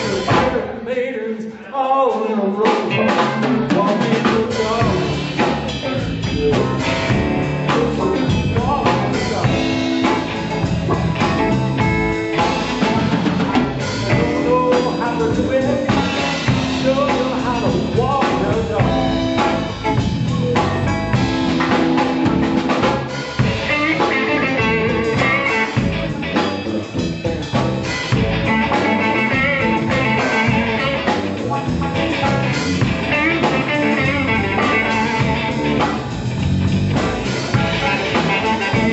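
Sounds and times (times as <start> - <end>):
live blues band playing: 0.0 - 0.8, 1.8 - 38.9
wavering electric guitar notes: 2.8 - 38.9.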